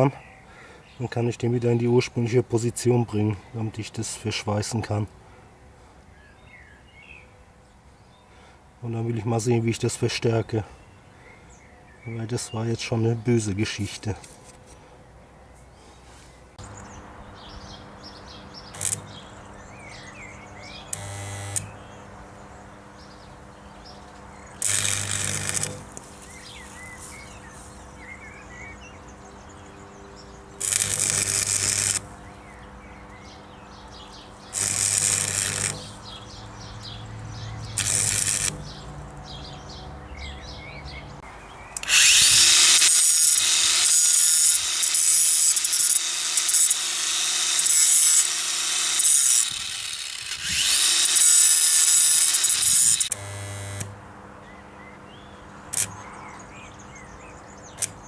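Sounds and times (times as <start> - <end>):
faint birdsong: 0.0 - 42.4, 43.2 - 58.0
angle grinder grinding steel: 24.6 - 27.4, 30.6 - 32.0, 34.5 - 36.2, 37.7 - 38.8, 41.8 - 53.9.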